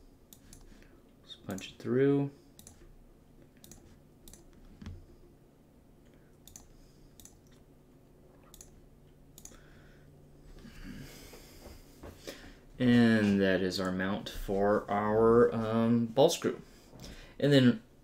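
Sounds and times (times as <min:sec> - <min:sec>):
faint low hum: 0:00.0 - 0:18.0
computer mouse clicking: 0:00.3 - 0:00.7, 0:02.6 - 0:02.8, 0:03.4 - 0:05.0, 0:06.4 - 0:07.6, 0:08.4 - 0:08.8, 0:09.4 - 0:09.6.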